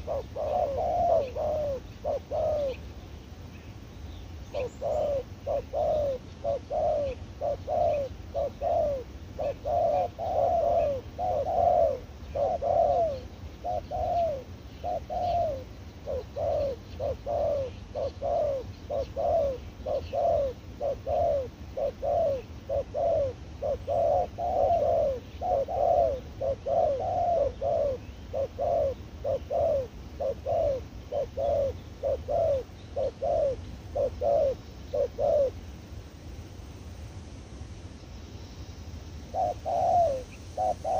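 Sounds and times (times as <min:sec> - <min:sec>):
dove cooing: 0:00.0 - 0:03.0, 0:04.4 - 0:35.6, 0:39.3 - 0:40.9.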